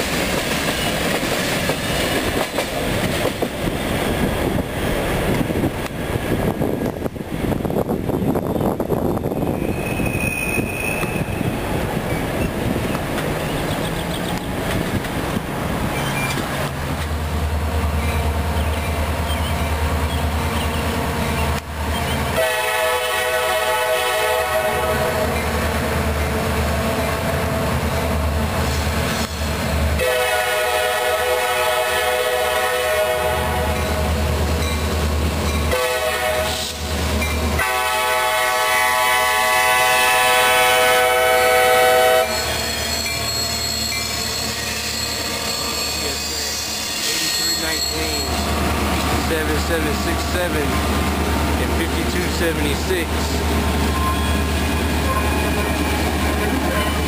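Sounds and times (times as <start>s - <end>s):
diesel locomotive drone: 0.0s - 57.0s
train air horn blasts: 22.3s - 25.5s, 30.0s - 34.1s, 35.7s - 36.9s, 37.6s - 48.4s.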